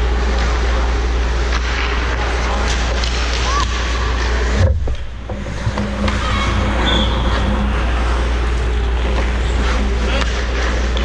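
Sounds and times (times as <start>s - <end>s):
skates scraping ice: 0.2s - 11.0s
hockey sticks clacking: 1.4s - 11.0s
steady low rumble: 4.1s - 11.0s
thud: 4.5s - 7.9s.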